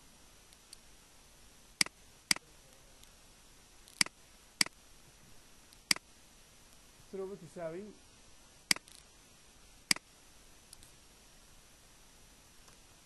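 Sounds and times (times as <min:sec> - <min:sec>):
faint room hiss: 0:00.0 - 0:13.0
computer mouse clicks: 0:03.9 - 0:04.8, 0:08.7 - 0:09.0.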